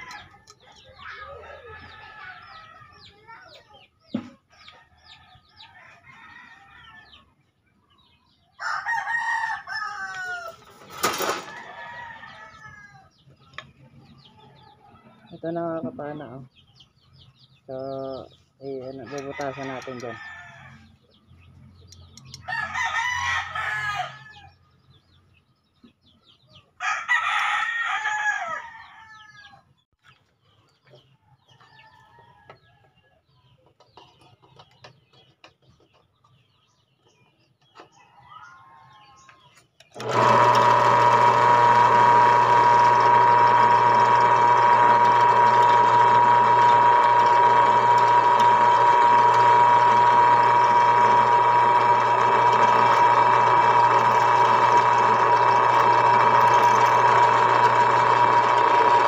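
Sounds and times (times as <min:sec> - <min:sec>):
rooster crowing: 0:08.6 - 0:10.7, 0:11.4 - 0:13.1, 0:22.4 - 0:24.6, 0:26.8 - 0:29.6
drill press whining: 0:39.9 - 0:59.0.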